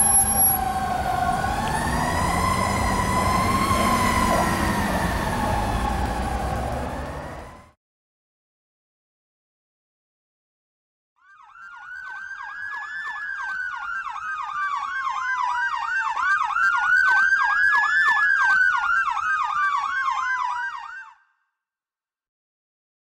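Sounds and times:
fire engine siren wail: 0.0 - 7.8, 11.3 - 21.2
fire engine siren yelp: 0.0 - 7.8, 11.2 - 21.2.

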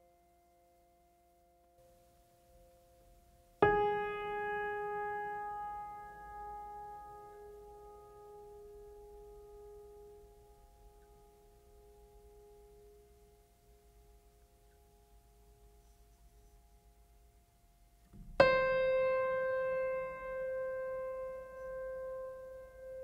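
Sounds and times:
piano music: 2.5 - 13.0, 18.4 - 23.0.

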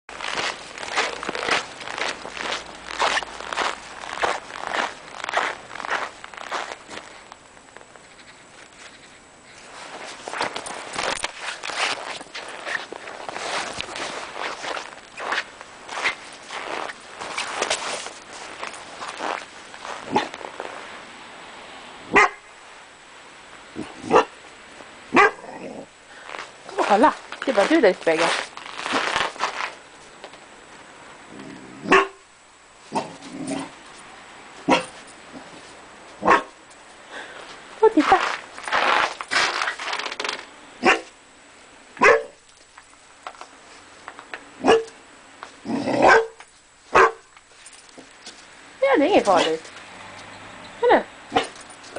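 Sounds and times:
puppy barking: 22.1 - 22.4, 24.1 - 24.3, 25.1 - 25.4, 31.9 - 32.2, 34.7 - 35.0, 36.2 - 36.6, 40.8 - 41.1, 42.0 - 42.4, 44.6 - 45.0, 46.0 - 47.3, 51.3 - 51.6.

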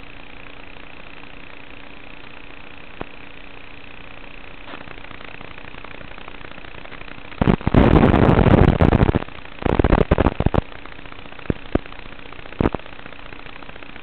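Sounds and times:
low hiss and hum: 0.0 - 14.0
loud crackling noise: 0.3 - 14.0.

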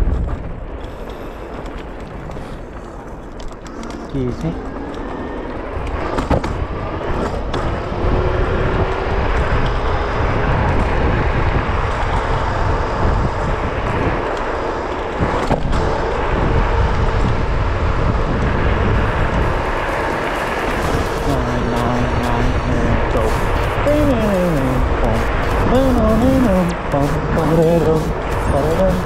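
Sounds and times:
scooter tyre rumble: 0.0 - 29.0
wind rushing over microphone: 0.0 - 29.0
faint steady whine: 9.2 - 29.0.

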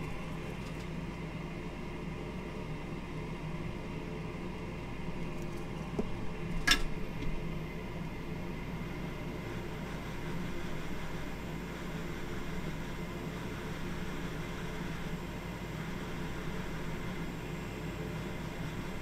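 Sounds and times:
fan-like equipment hum: 0.0 - 19.0.

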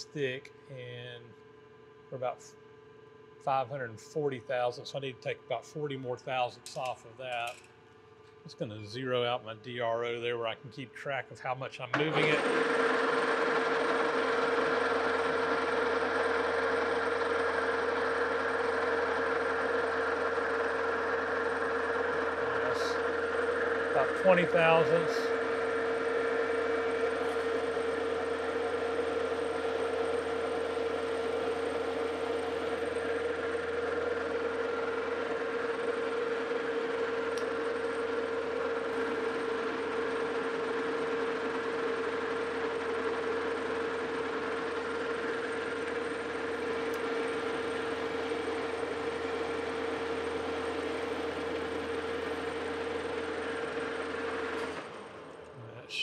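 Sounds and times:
metal lathe running: 12.0 - 55.1.

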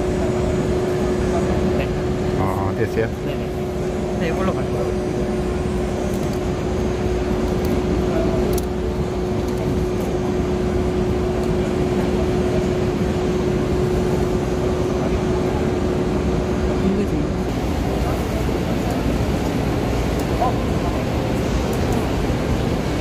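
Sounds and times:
machinery humming: 0.0 - 23.0.

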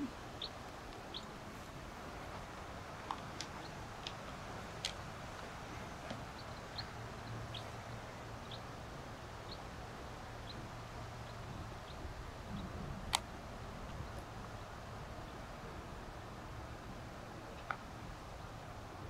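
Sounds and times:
small bird chirping: 0.0 - 1.4, 5.7 - 12.8
low background hum: 0.0 - 19.0.

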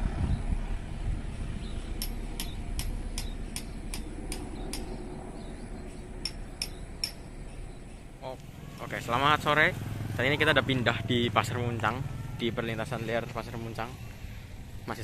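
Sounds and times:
distant train rumble: 0.0 - 15.0
sharp light ticks: 2.0 - 5.0, 6.2 - 7.2.

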